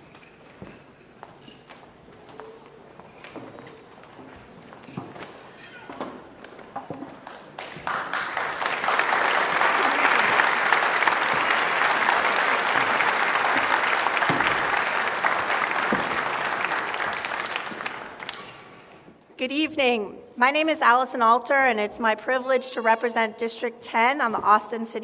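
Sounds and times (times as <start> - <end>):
audience applauding: 7.2 - 18.8.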